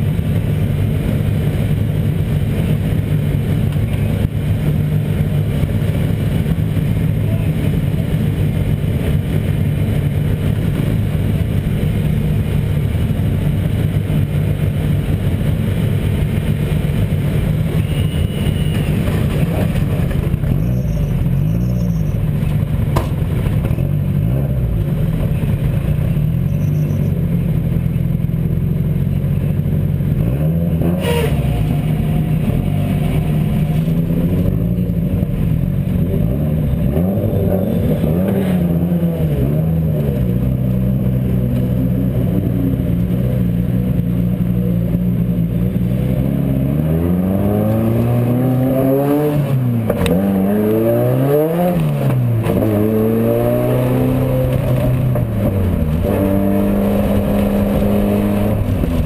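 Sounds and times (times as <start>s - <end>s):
sharp knock: 22.9s - 23.6s
engine revving: 30.0s - 59.0s.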